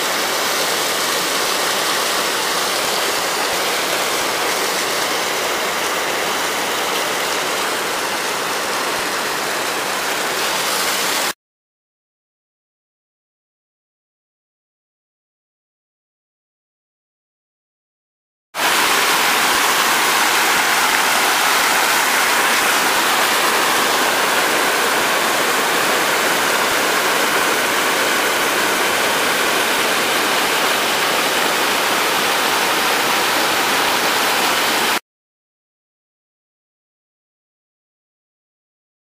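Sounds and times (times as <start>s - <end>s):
river water rushing: 0.0s - 11.3s, 18.6s - 35.0s.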